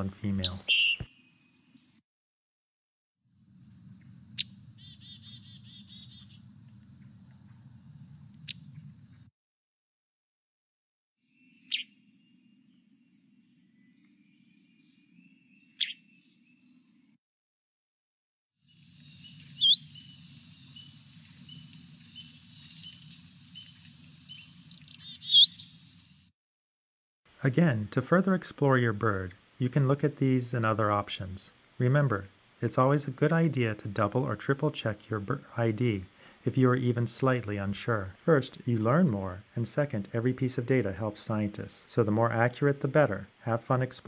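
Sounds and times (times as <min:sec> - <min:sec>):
bird call notes: 0:00.4 - 0:01.5, 0:04.4 - 0:06.5, 0:11.5 - 0:12.4, 0:15.6 - 0:16.1, 0:18.8 - 0:26.0
short repeated bird notes: 0:00.4 - 0:02.0, 0:11.5 - 0:12.0, 0:15.6 - 0:16.2, 0:19.0 - 0:25.9
faint repeated chirps: 0:00.6 - 0:01.4, 0:18.9 - 0:26.2
insect trill: 0:03.3 - 0:09.2, 0:18.6 - 0:26.3
low background rumble: 0:03.4 - 0:09.3
steady low hum: 0:03.4 - 0:09.3.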